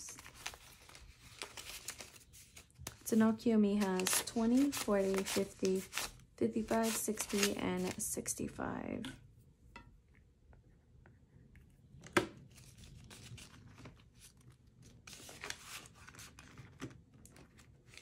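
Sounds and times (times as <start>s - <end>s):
rasping rustle of paper: 3.9s - 8.0s.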